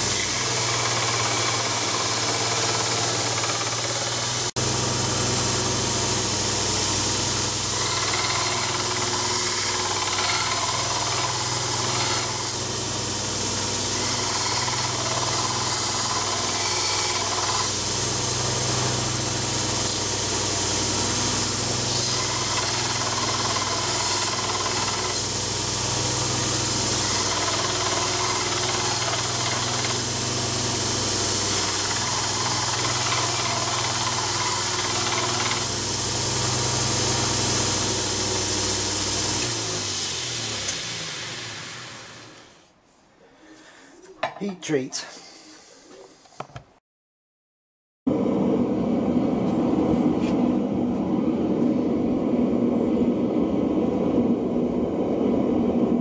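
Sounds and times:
electric belt grinder running: 0.0s - 42.6s
steel grinding on belt: 13.7s - 17.9s, 20.7s - 35.7s.

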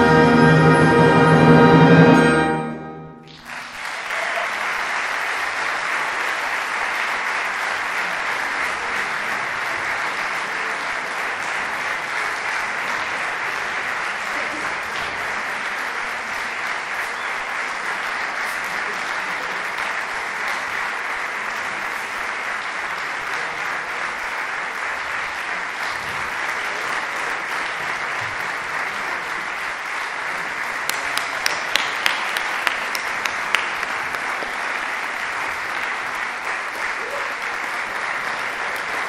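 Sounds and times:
audience applauding: 3.2s - 39.0s
loud single claps: 30.8s - 35.2s.

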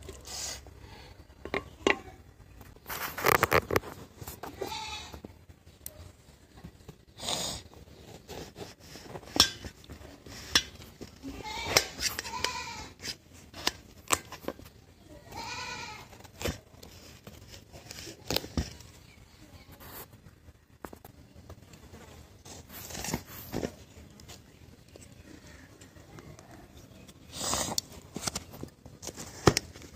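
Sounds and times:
goat bleating: 4.4s - 5.2s, 15.3s - 16.1s.

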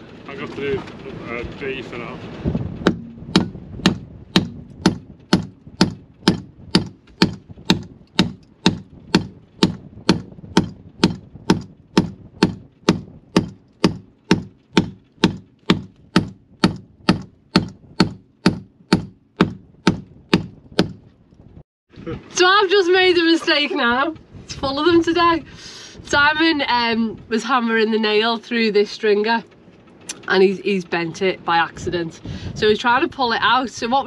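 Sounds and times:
hammer striking a nail in wood: 2.8s - 21.1s.

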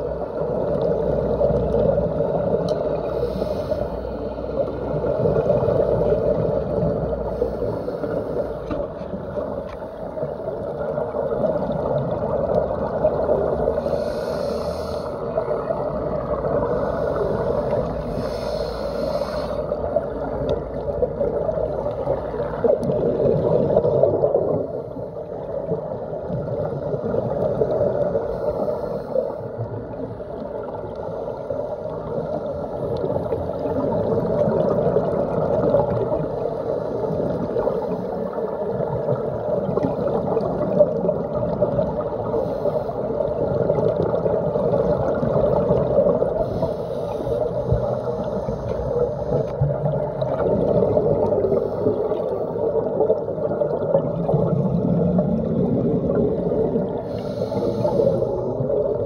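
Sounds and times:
underwater water rush: 0.0s - 59.0s
diver exhaust bubbles: 19.8s - 24.8s, 49.2s - 59.0s.

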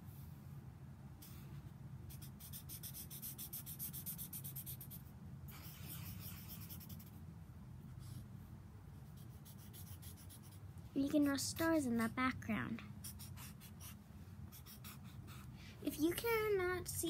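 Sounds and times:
steady low hum: 0.0s - 17.0s
marker scratching on paper: 2.1s - 7.2s, 9.0s - 10.6s, 13.0s - 15.5s.

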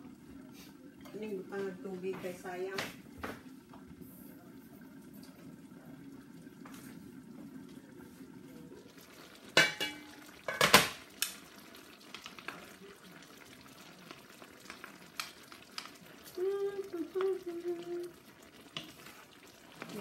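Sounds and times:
wok lid clanking: 9.6s - 11.0s.

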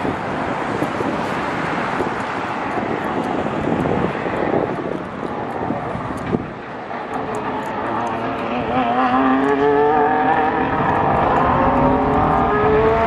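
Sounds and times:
distant race car engine drone: 0.0s - 13.0s
wind on microphone: 0.0s - 13.0s.

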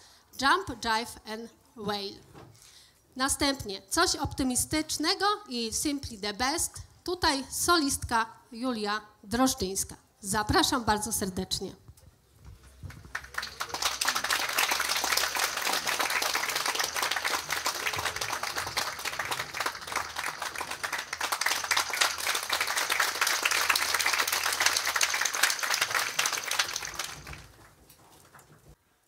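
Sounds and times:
audience applauding: 12.8s - 27.8s.

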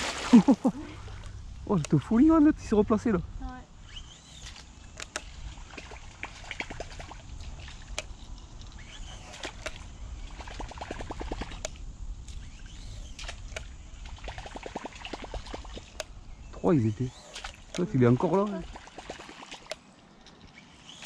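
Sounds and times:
low steady rumble: 0.0s - 18.9s
fishing reel clicks: 3.4s - 13.8s, 14.4s - 21.0s
quick ticks of reel: 3.8s - 16.2s, 16.8s - 21.0s
small splashes on water: 4.4s - 8.0s, 13.2s - 16.0s, 17.3s - 19.8s.

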